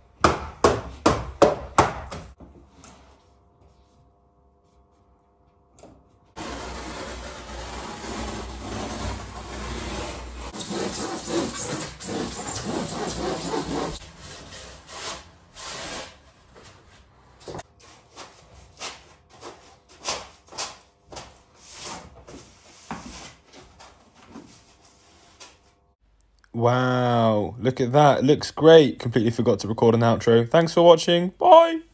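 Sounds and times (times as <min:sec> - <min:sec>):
boards scraping and rubbing: 0:06.4 - 0:16.2
saw rasping through foam board: 0:06.4 - 0:16.2.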